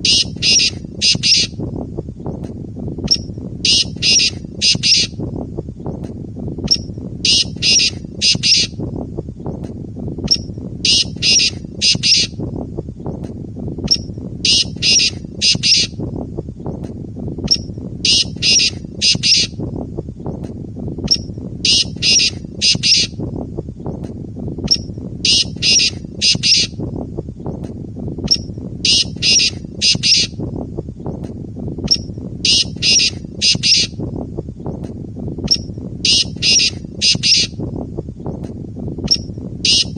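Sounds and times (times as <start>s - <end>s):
bird harsh rasping call: 0.0s - 1.6s, 3.7s - 5.2s, 7.3s - 8.8s, 10.9s - 12.4s, 14.5s - 16.0s, 18.1s - 19.6s, 21.6s - 23.2s, 25.3s - 26.8s, 28.8s - 30.4s, 32.5s - 34.0s, 36.1s - 37.6s, 39.7s - 39.9s
steady low rumble: 0.0s - 39.9s.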